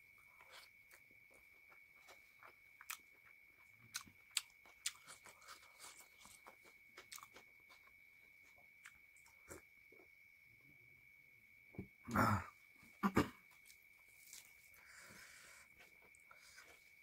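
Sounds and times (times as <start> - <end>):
close-miked chewing: 0.3 - 9.7, 13.5 - 17.0.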